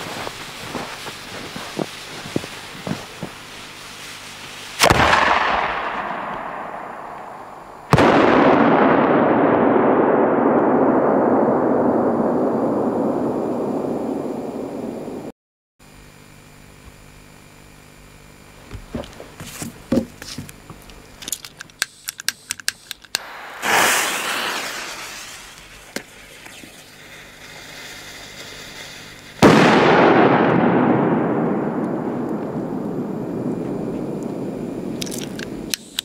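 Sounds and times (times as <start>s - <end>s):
firecracker bang: 4.8s - 15.2s, 23.2s - 35.0s
blast rumble: 4.8s - 15.3s, 23.2s - 28.3s, 29.3s - 35.7s
small clicks: 20.8s - 23.2s, 35.0s - 36.0s
short hiss: 21.9s - 29.5s.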